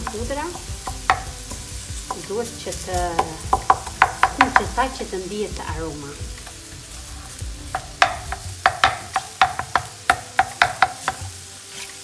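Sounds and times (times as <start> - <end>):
garlic and mushrooms sizzling in pan: 0.0 - 12.0
wooden spatula scraping a pan: 10.4 - 12.0.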